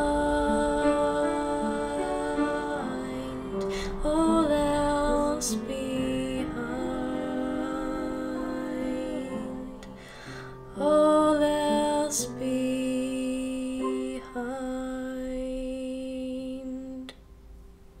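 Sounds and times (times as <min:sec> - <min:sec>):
slow soft song: 0:00.0 - 0:18.0.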